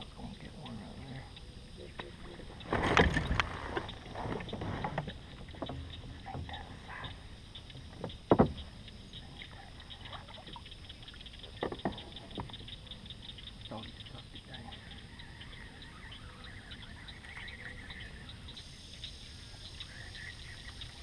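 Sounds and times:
gear knocking against kayak hull: 7.8s - 8.7s, 11.5s - 12.8s.

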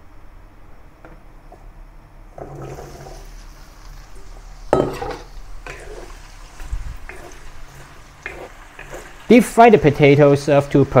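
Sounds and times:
oil sizzling: 2.2s - 11.0s.

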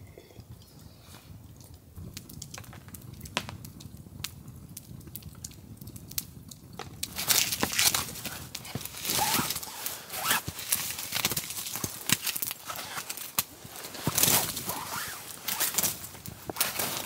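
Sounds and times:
campfire crackling and popping: 0.4s - 17.0s
stick knocking and scraping logs: 6.8s - 9.7s.

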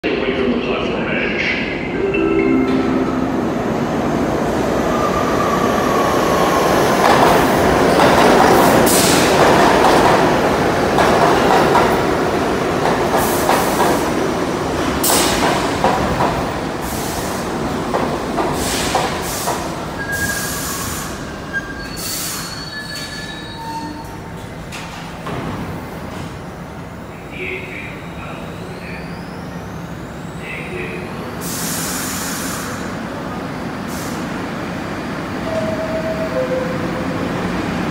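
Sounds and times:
subway train wheel and rail noise: 0.0s - 37.9s
train brakes squealing: 20.0s - 24.3s.

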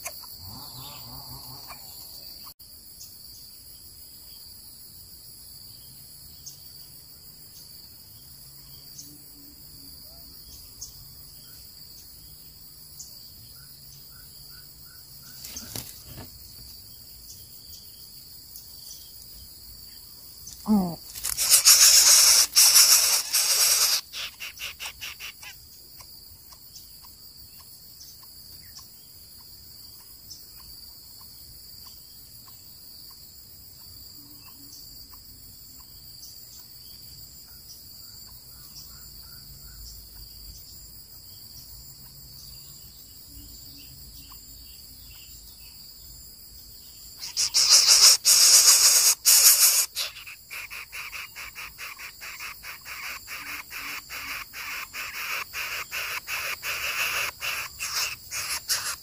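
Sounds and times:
high insect drone: 0.0s - 59.0s
bird chicks hissing harshly: 15.4s - 16.3s, 20.7s - 25.6s, 47.2s - 59.0s.

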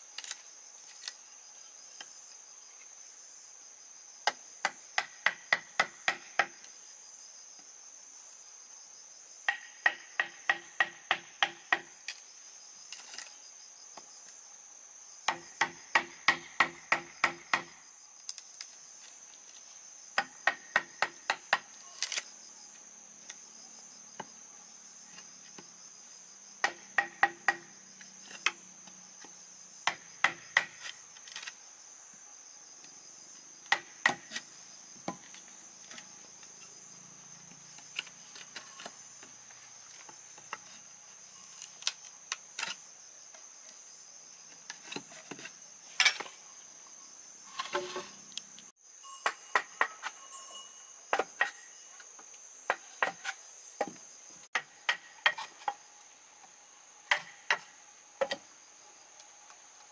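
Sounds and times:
insects chirring: 0.0s - 59.9s
tool striking bamboo: 4.2s - 6.7s, 9.5s - 12.2s, 15.3s - 18.4s, 20.2s - 22.2s, 26.6s - 27.7s, 29.2s - 31.6s, 33.6s - 35.3s, 49.2s - 50.2s, 51.1s - 51.7s, 52.7s - 55.8s, 57.1s - 58.5s.

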